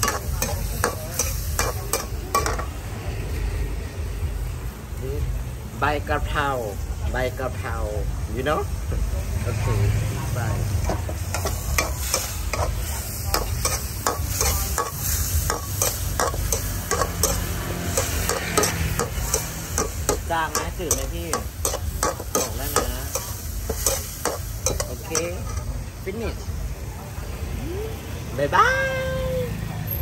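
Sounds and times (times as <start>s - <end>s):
food sizzling in oil: 0.0s - 3.6s, 5.8s - 26.8s
metal spatula scraping wok: 10.7s - 26.4s.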